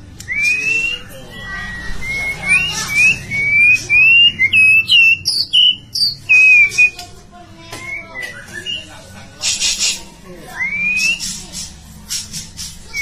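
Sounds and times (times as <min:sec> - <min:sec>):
bird singing whistled phrases: 0:00.2 - 0:07.0, 0:07.7 - 0:08.9, 0:10.6 - 0:11.4.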